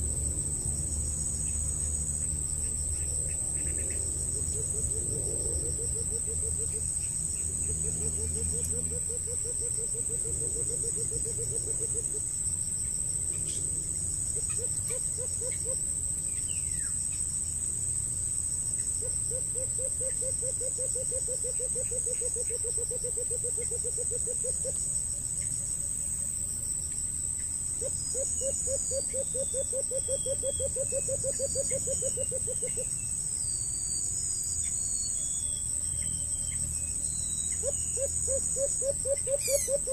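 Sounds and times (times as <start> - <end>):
insects droning: 0.0 - 39.9.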